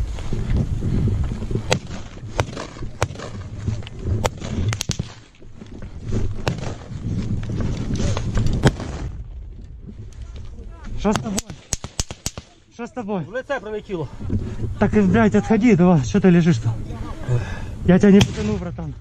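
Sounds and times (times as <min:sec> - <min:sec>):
wind rumble on microphone: 0:00.0 - 0:11.6, 0:12.9 - 0:19.0
gunshot cracks: 0:06.4 - 0:06.8, 0:18.2 - 0:18.6.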